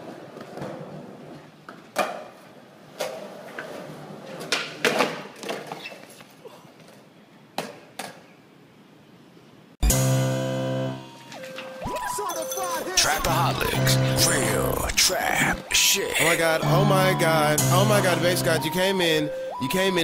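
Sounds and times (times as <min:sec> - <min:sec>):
skateboard clacks and slaps: 0:00.0 - 0:06.3
skateboard wheels rolling: 0:00.0 - 0:08.2.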